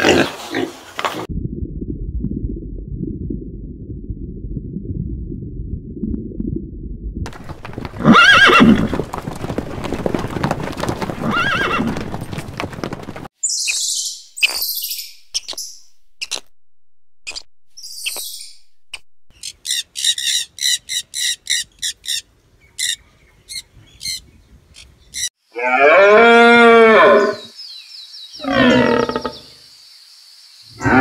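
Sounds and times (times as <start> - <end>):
low muffled rumble: 1.3 - 8.0
horses galloping: 7.3 - 13.3
horse whinnying: 7.6 - 9.1, 11.0 - 12.2.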